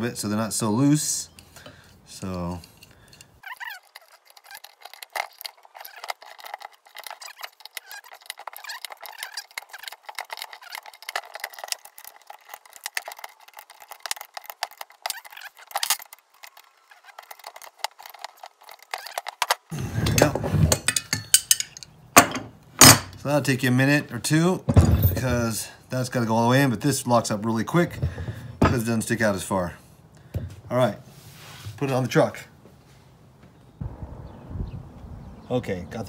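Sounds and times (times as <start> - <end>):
wrenches clinking on bolts: 1.0 - 23.2, 24.7 - 25.7.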